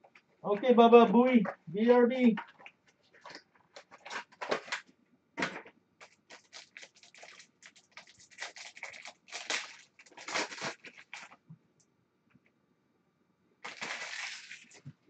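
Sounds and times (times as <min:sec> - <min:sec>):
foil wrapper crinkling and tearing: 0:02.4 - 0:04.8, 0:06.0 - 0:11.4, 0:13.6 - 0:14.9.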